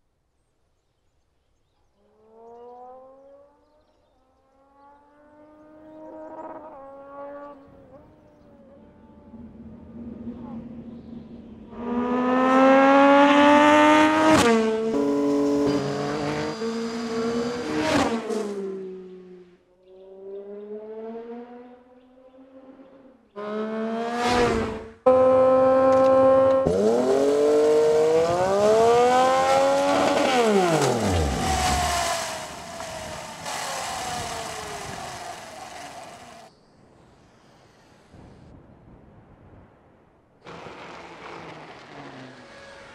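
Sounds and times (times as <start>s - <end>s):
motorcycle passing by: 2.1s - 36.5s, 40.5s - 42.9s
motorcycle engine revving: 4.6s - 21.6s, 23.4s - 36.5s.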